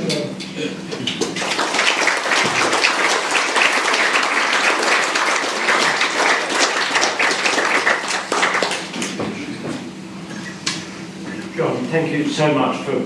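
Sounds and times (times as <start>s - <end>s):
audience applauding: 1.1s - 9.3s.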